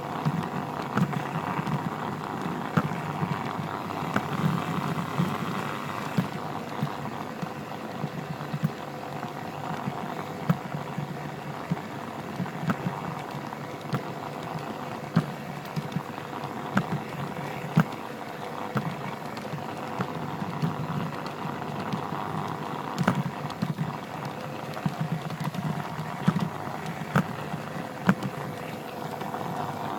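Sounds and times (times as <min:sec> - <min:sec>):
faint steady whine: 0:00.0 - 0:29.9
sharp clicks of track: 0:00.1 - 0:29.9.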